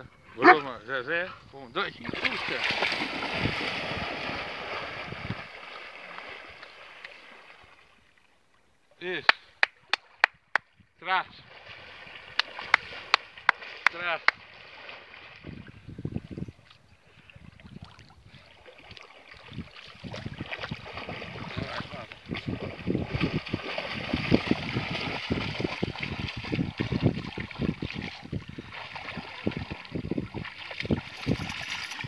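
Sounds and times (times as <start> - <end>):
dogs splashing through water: 2.0 - 7.8, 11.4 - 15.7, 17.6 - 32.0.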